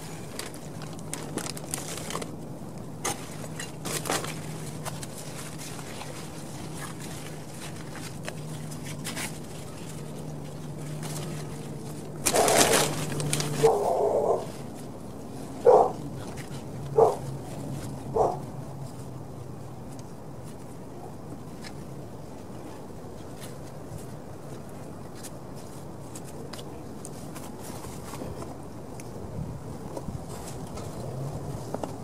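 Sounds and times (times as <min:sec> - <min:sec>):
dog barking: 0:13.6 - 0:14.5, 0:15.6 - 0:16.0, 0:17.0 - 0:17.2, 0:18.1 - 0:18.4.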